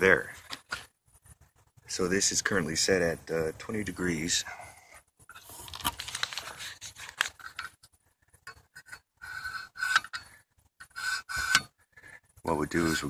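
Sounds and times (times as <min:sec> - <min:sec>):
sharpening stone scraping knife edge: 0:08.8 - 0:11.7.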